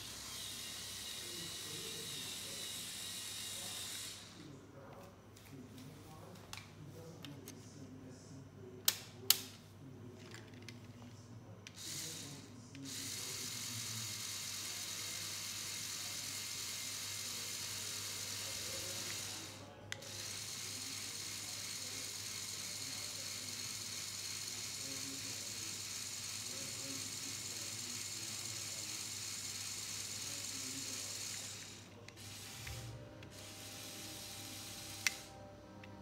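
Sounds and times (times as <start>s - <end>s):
small electric motor whirring: 0.0s - 4.4s, 11.7s - 35.5s.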